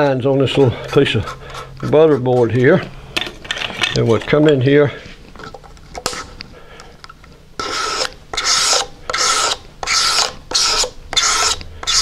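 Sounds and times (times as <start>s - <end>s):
blade scraping wooden board: 7.6s - 12.0s.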